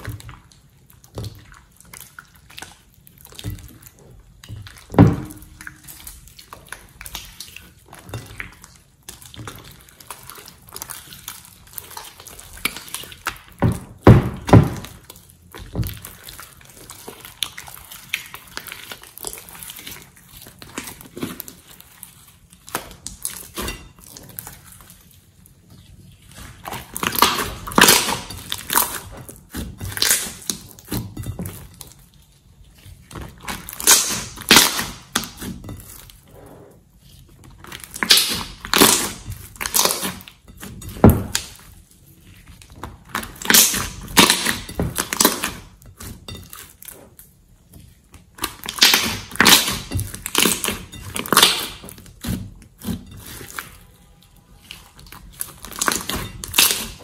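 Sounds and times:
slime squelching: 0:00.0 - 0:57.0.

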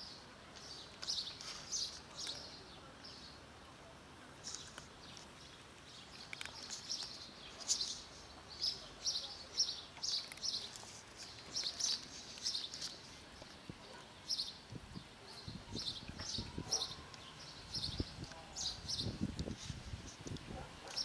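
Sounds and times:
cats crunching dry kibble: 0:00.5 - 0:02.6, 0:04.2 - 0:14.8, 0:19.2 - 0:21.0.

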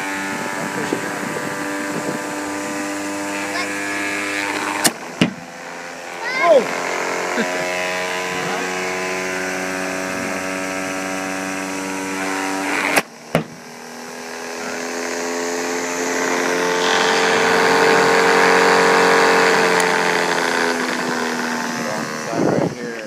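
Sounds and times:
pitching machine motor whirring: 0:00.0 - 0:23.0
sharp knocks: 0:05.2 - 0:05.4, 0:13.3 - 0:13.7.

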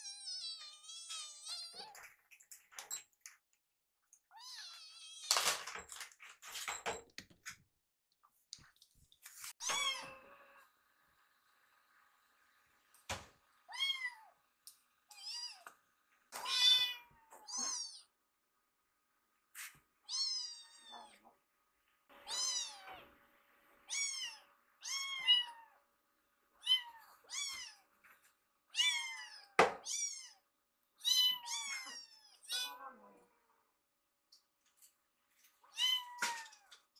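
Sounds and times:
kittens meowing: 0:16.4 - 0:18.1, 0:22.2 - 0:23.0, 0:23.9 - 0:25.8, 0:26.6 - 0:27.9, 0:28.7 - 0:30.4, 0:31.0 - 0:32.8.

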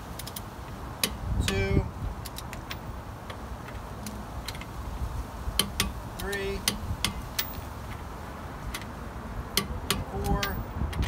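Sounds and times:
rapid ratchet ticks: 0:09.5 - 0:11.0
torque wrench clicks: 0:09.5 - 0:11.0.

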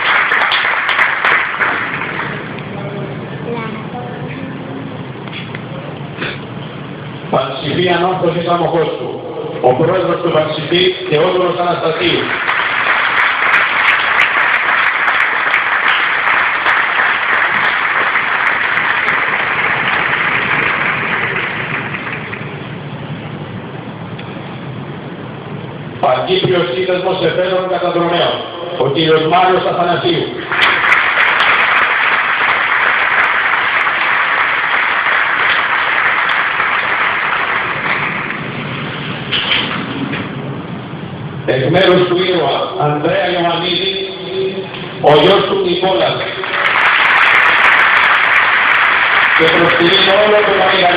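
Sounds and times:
stadium crowd applauding: 0:00.0 - 0:02.9, 0:10.7 - 0:22.9, 0:30.2 - 0:39.8, 0:45.2 - 0:50.9.

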